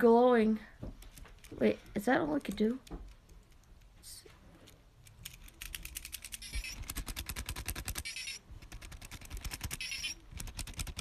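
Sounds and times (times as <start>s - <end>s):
toy motor and gears clicking: 4.6s - 11.0s.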